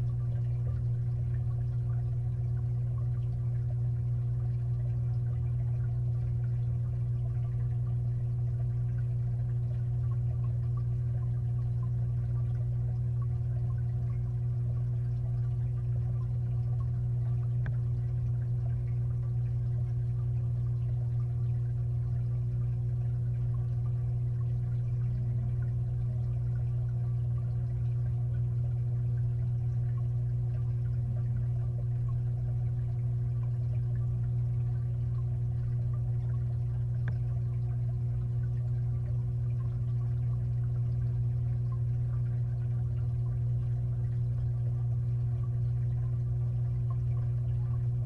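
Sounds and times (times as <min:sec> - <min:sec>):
aquarium filter humming underwater: 0:00.0 - 0:48.0
moving water: 0:00.0 - 0:48.0
small ticks: 0:16.7 - 0:18.8, 0:36.9 - 0:37.3.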